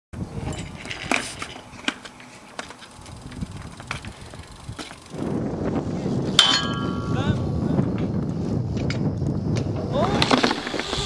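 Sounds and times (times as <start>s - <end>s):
wind on microphone: 0.2s - 1.8s, 3.0s - 11.0s
bike parts clicking: 0.4s - 5.3s.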